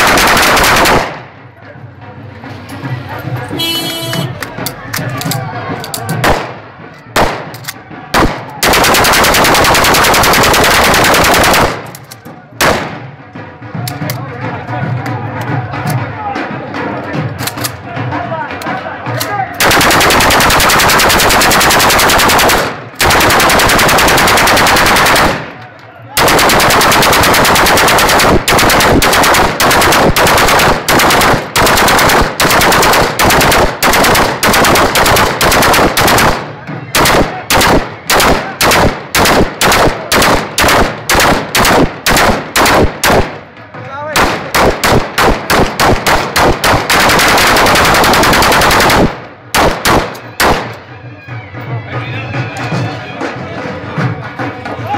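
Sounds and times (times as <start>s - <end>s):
automatic rifle fire: 0.0s - 1.2s, 6.2s - 6.6s, 7.2s - 7.6s, 8.2s - 12.0s, 12.6s - 13.0s, 19.6s - 25.6s, 26.2s - 43.4s, 44.2s - 50.7s.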